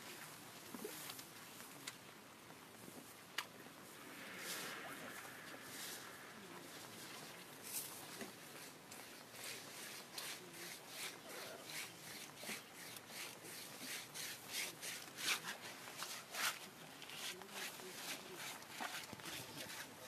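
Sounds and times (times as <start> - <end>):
elephant rustling grass: 2.7 - 20.0.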